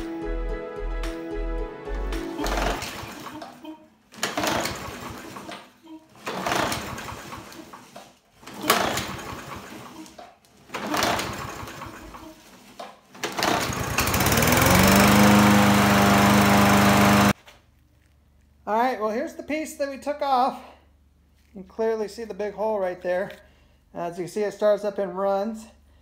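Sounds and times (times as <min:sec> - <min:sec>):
lawn mower engine running: 0:02.3 - 0:03.4, 0:06.2 - 0:07.8, 0:08.7 - 0:10.0, 0:10.7 - 0:12.2, 0:13.2 - 0:17.4
recoil pull starter: 0:02.3 - 0:03.5, 0:04.2 - 0:12.4, 0:13.2 - 0:17.4.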